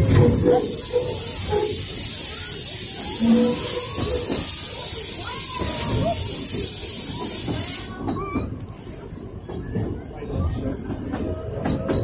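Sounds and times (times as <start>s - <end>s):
steam train hissing: 0.0s - 9.6s
faint voices: 0.0s - 12.0s
train rumbling: 0.0s - 12.0s.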